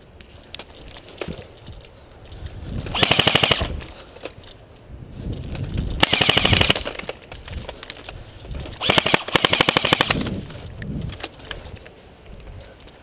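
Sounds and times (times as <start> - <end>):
airsoft rifle full-auto bursts: 2.9 - 3.7, 6.0 - 7.1, 8.8 - 10.4.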